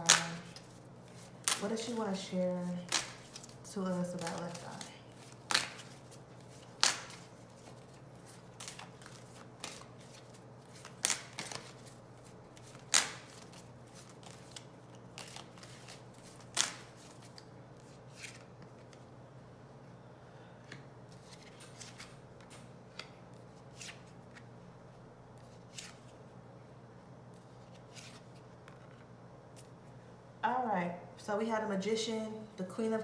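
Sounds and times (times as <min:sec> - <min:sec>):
sharp card snaps: 0:00.0 - 0:00.6, 0:01.4 - 0:01.9, 0:02.8 - 0:03.5, 0:04.2 - 0:06.0, 0:06.8 - 0:07.3, 0:12.7 - 0:13.5, 0:16.4 - 0:16.9
playing cards rustling: 0:00.0 - 0:19.0, 0:20.7 - 0:24.5, 0:25.3 - 0:26.2, 0:27.4 - 0:29.8.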